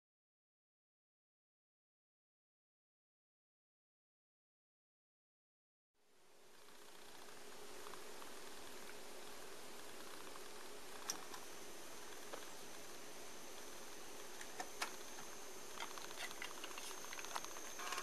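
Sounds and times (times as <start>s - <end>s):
faint high whine: 6.0s - 18.0s.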